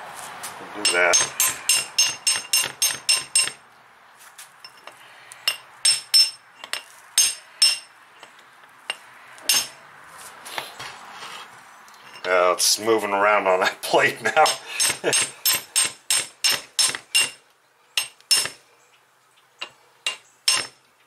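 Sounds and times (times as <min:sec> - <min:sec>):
hammer tapping metal punch: 0:00.8 - 0:03.6, 0:05.5 - 0:07.9, 0:09.5 - 0:09.8, 0:14.4 - 0:17.4, 0:18.0 - 0:18.6, 0:19.6 - 0:20.8.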